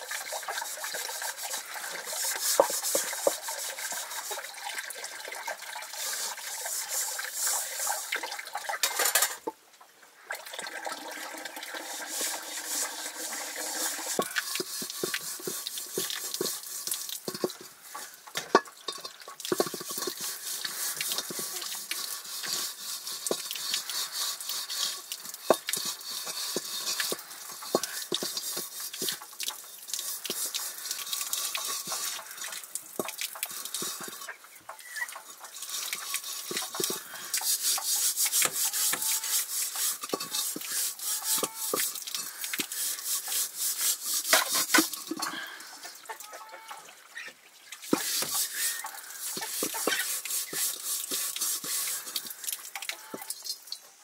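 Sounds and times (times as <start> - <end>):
cooking pot hissing: 0.0 - 4.6, 5.6 - 8.2, 11.0 - 45.8, 47.9 - 52.7
utensil clinking on pot: 17.2 - 17.7, 18.4 - 29.2, 39.7 - 42.8
hens clucking: 45.7 - 47.4, 48.0 - 50.7.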